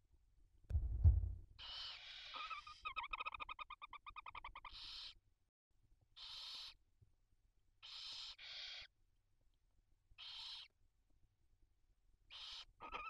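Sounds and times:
owl chicks hissing: 0:01.6 - 0:03.4, 0:04.5 - 0:05.2, 0:06.2 - 0:06.8, 0:07.8 - 0:08.9, 0:10.2 - 0:10.8, 0:12.3 - 0:13.0
owl twittering: 0:01.6 - 0:05.2, 0:06.2 - 0:06.8, 0:07.8 - 0:08.9, 0:10.2 - 0:10.8, 0:12.3 - 0:13.0.

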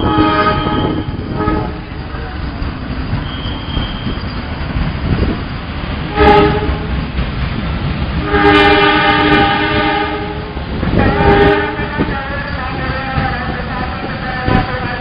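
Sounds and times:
train horn blasts: 0:00.0 - 0:01.8, 0:06.1 - 0:06.9, 0:08.2 - 0:12.1
train rumbling on rails: 0:00.0 - 0:15.0.

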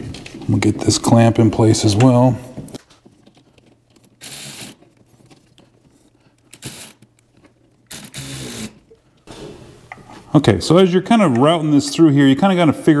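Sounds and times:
cordless ratchet running: 0:04.2 - 0:04.8, 0:07.9 - 0:08.8.

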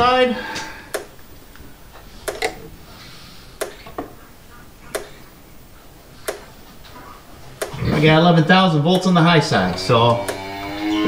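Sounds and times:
electric fence charger clicking: 0:00.6 - 0:01.6, 0:02.2 - 0:02.6, 0:03.6 - 0:04.2, 0:04.8 - 0:05.3, 0:06.2 - 0:08.0, 0:08.9 - 0:11.0.

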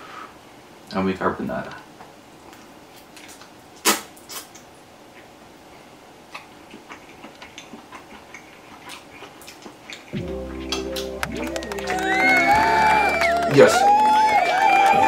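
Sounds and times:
chewing and lip-smacking: 0:04.2 - 0:12.0.

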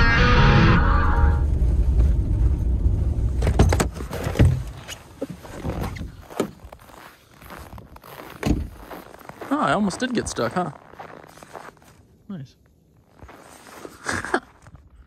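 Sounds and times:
pickup truck engine rumble: 0:00.4 - 0:06.4
footsteps in snow: 0:04.1 - 0:15.0.

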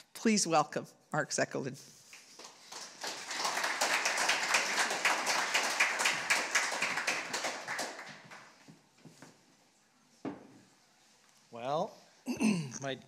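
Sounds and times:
audience applauding: 0:02.3 - 0:08.6.

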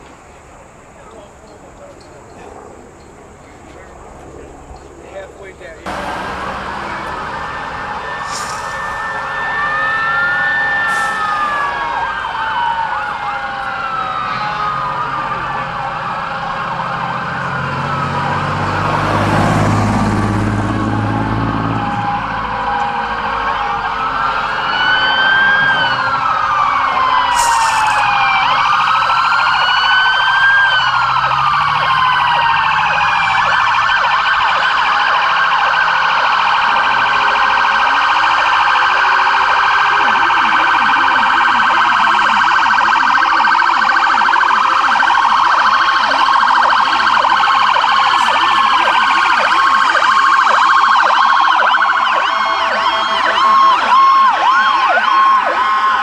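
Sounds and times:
sirens wailing: 0:00.0 - 0:56.0
sirens yelping: 0:00.0 - 0:56.0.

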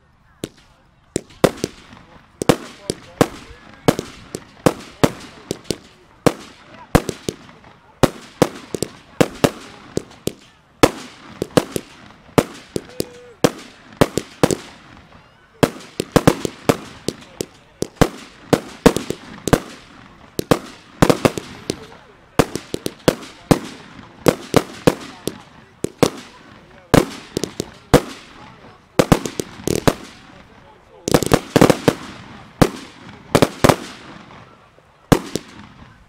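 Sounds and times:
fireworks bursting with sharp bangs: 0:00.4 - 0:36.0.

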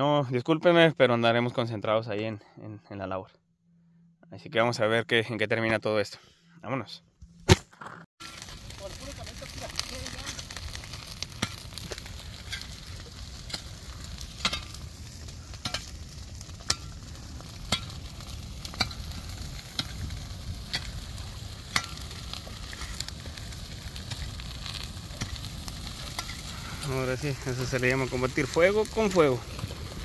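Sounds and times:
brush fire crackling and popping: 0:08.2 - 0:30.0.

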